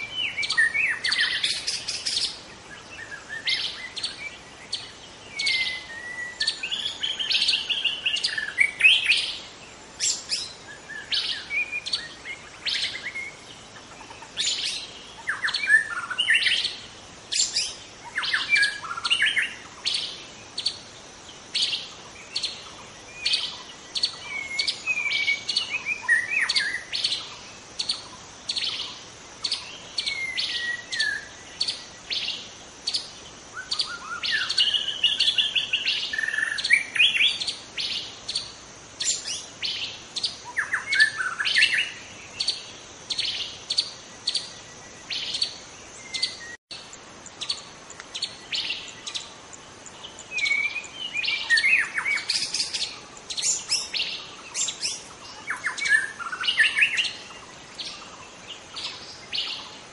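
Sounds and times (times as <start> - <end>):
songbird whistled phrases: 5.3 - 9.3, 50.3 - 57.3.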